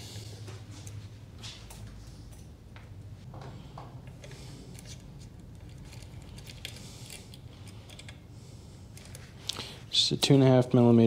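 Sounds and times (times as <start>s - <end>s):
small metallic clicks and scrapes: 4.2s - 8.2s.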